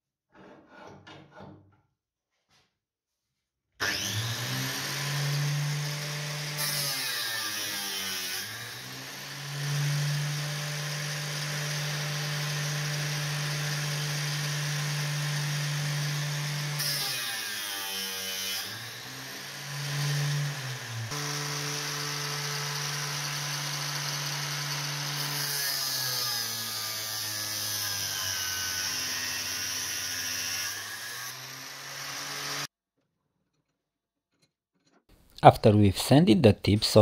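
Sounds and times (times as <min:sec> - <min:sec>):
electric grinder sanding metal: 0:03.8 - 0:32.7.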